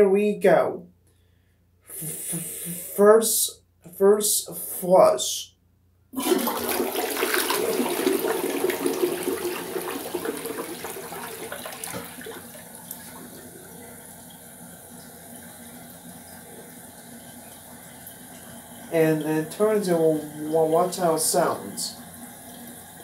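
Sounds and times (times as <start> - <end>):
toilet flushing: 6.2 - 23.0.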